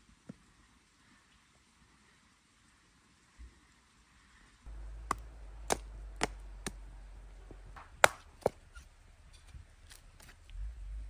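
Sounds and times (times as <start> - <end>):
knife chopping firewood: 4.7 - 8.9.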